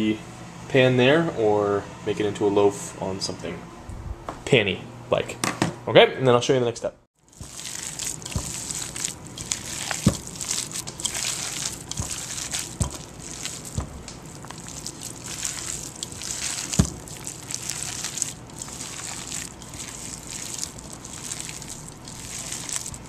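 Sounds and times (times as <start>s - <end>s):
hands squishing wet meat: 7.2s - 23.0s
dull thumps: 12.0s - 14.2s.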